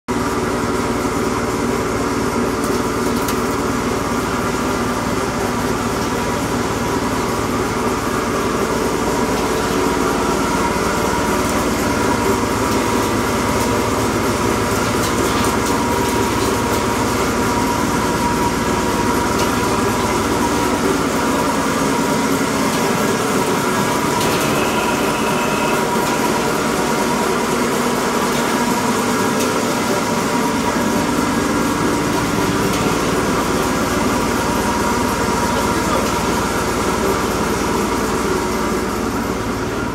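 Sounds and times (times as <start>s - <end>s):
wood chipper motor drone: 0.1s - 39.9s.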